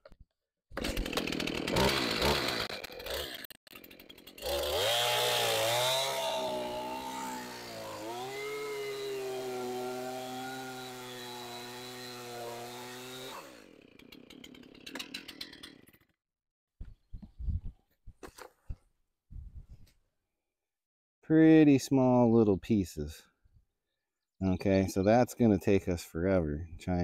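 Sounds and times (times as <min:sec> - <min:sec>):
chainsaw cutting log: 0:00.7 - 0:16.2.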